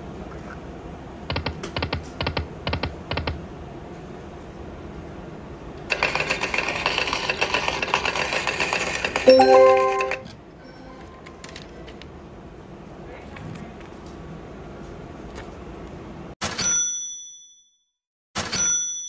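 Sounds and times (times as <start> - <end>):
clicking electronic game sound: 9.3 - 10.3
loud slot machine chime: 9.3 - 10.3.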